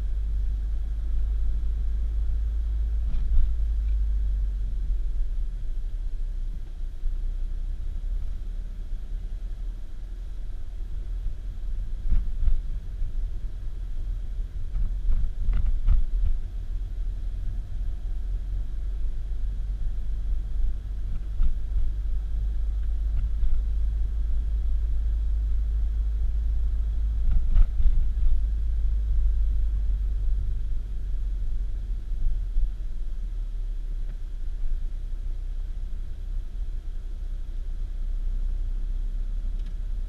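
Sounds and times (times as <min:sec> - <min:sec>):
car rumbling on the move: 0:00.0 - 0:40.0
faint clicks: 0:39.6 - 0:39.8.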